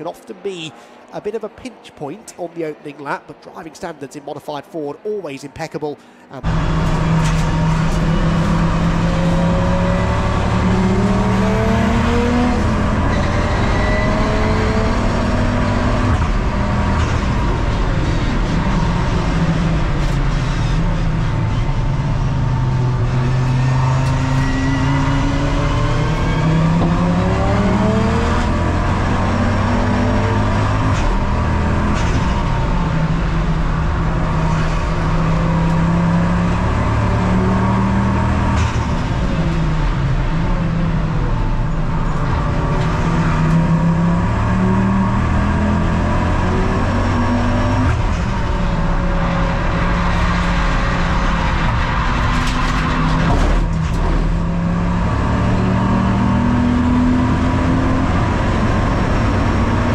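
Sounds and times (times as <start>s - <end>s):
race car engine revving: 6.4s - 59.9s.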